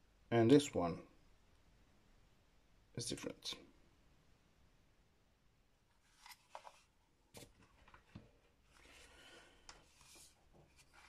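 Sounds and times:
soft scrape: 0:08.7 - 0:11.0.

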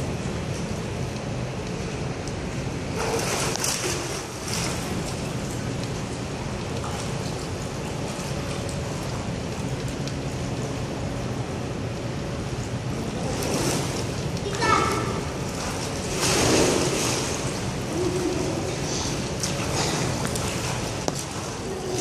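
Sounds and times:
pool water splashing and lapping: 0:00.0 - 0:22.0
steady low hum: 0:00.0 - 0:22.0
loud splash: 0:03.0 - 0:05.0, 0:13.2 - 0:22.0.

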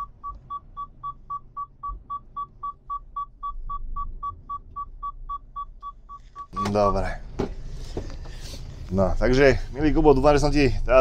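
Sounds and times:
seatbelt warning chime beeping: 0:00.0 - 0:07.2.

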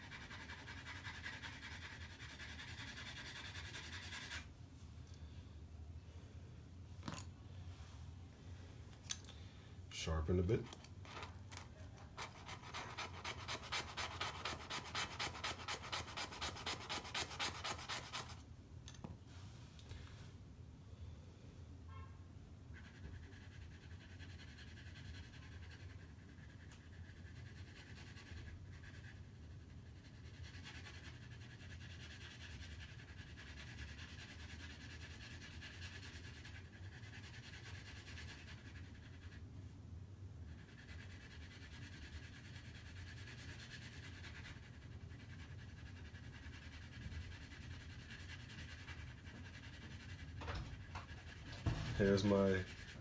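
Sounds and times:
pencil scratching on paper: 0:00.0 - 0:04.5, 0:10.1 - 0:18.4, 0:22.7 - 0:39.5, 0:40.4 - 0:53.0.

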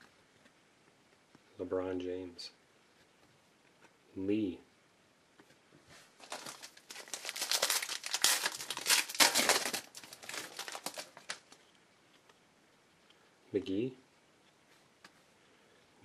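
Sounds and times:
foil wrapper crinkling: 0:06.2 - 0:11.6.

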